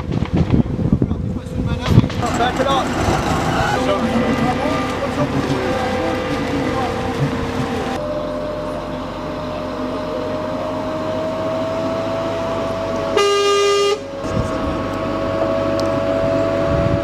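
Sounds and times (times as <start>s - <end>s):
armoured vehicle engine whine: 0.0s - 17.0s
vehicle horn: 13.1s - 14.1s.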